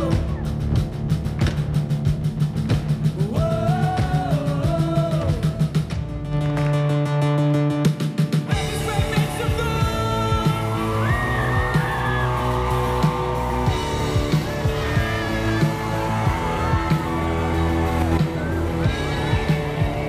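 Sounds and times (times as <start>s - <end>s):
band playing through loudspeakers: 0.0s - 20.0s
person singing lead: 8.5s - 12.6s.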